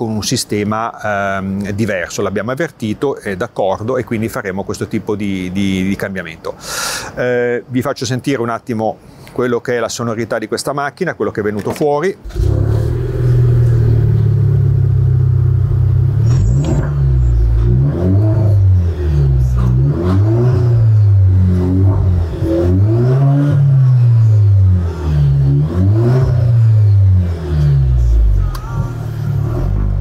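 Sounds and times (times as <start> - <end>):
car engine idling: 12.2 - 30.0
engine revving in throttle blips: 12.2 - 30.0.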